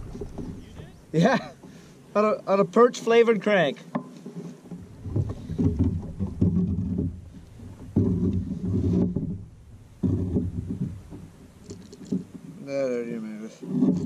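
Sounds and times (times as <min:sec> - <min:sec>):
muffled knocks against kayak hull: 0:00.0 - 0:01.8, 0:04.7 - 0:12.5.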